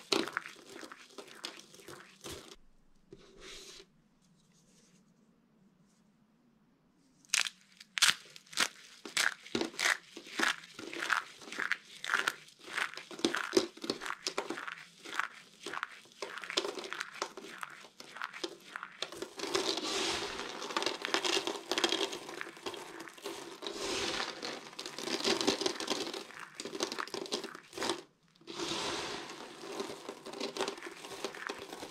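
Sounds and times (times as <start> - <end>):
soap flakes crunching and rustling: 0.0 - 2.6, 7.3 - 31.9
soap curls cracking and snapping: 7.3 - 28.1, 29.3 - 31.9.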